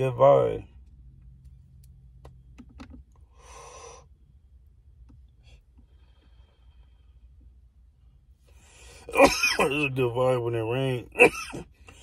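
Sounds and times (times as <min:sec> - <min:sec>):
low steady hum: 0:00.0 - 0:12.0
man breathing: 0:03.2 - 0:04.4, 0:05.3 - 0:07.6, 0:08.4 - 0:09.1.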